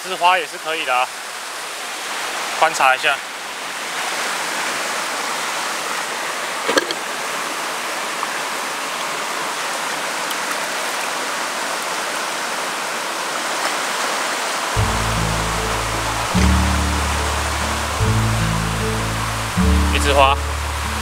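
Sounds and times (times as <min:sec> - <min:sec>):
stream running over rocks: 0:00.0 - 0:21.0
background music: 0:14.8 - 0:21.0.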